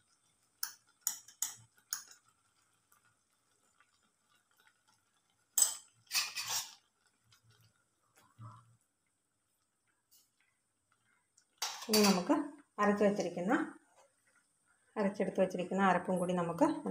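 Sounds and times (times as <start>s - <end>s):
spoon clinking against pot: 5.5s - 6.8s, 11.6s - 12.3s
rattling scrape: 6.1s - 6.8s.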